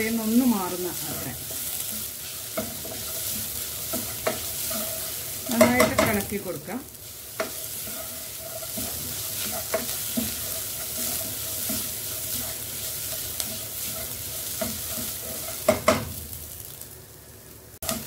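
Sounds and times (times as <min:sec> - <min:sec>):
food sizzling in hot oil: 0:00.0 - 0:18.0
spatula scraping a pot: 0:01.1 - 0:05.7, 0:07.4 - 0:15.7.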